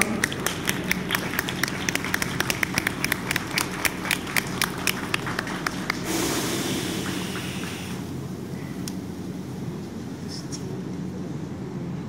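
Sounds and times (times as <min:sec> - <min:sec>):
crowd applauding: 0:00.0 - 0:08.0
steady rushing noise: 0:00.0 - 0:12.0.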